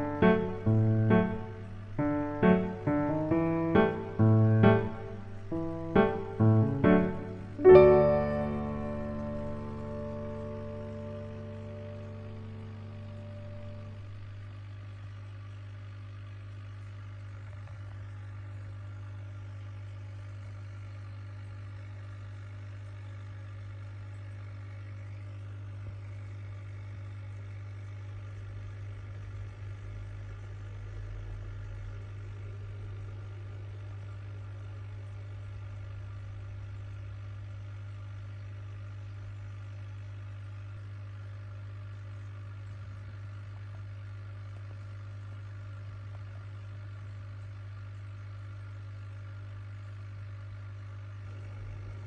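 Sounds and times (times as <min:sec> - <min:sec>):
background music: 0:00.0 - 0:14.0
low-pitched hum: 0:00.0 - 0:37.1.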